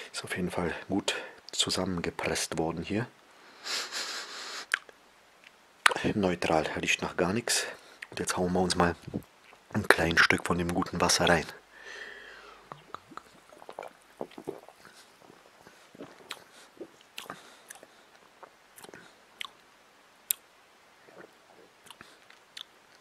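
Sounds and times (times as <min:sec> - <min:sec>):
mouth clicks and lip smacks: 0:04.6 - 0:06.0, 0:08.0 - 0:08.2, 0:09.0 - 0:09.8, 0:12.6 - 0:19.6, 0:20.3 - 0:20.5, 0:21.1 - 0:23.0
person swallowing: 0:09.0 - 0:09.8, 0:12.5 - 0:19.6.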